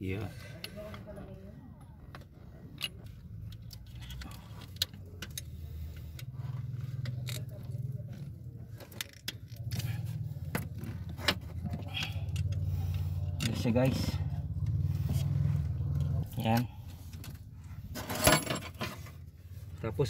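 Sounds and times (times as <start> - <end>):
steady low rumble: 1.8 - 18.0
metal tools clinking: 17.1 - 19.1.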